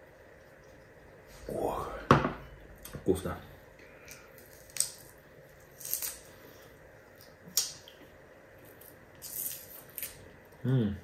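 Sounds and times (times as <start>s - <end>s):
dried fish crackling when chewed: 3.9s - 10.7s.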